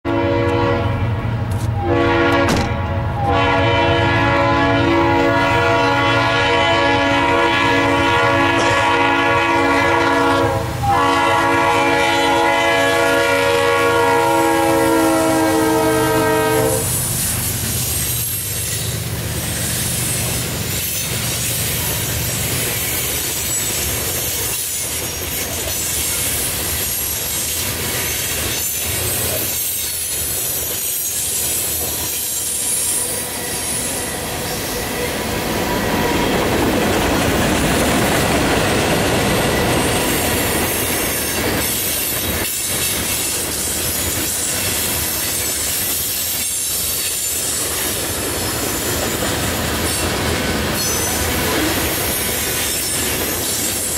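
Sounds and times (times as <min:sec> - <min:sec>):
locomotive air horn blasts: 0:00.0 - 0:17.1
train wheels clickety-clack: 0:16.7 - 0:53.9
high wheel squeal: 0:16.8 - 0:36.5, 0:39.0 - 0:53.9.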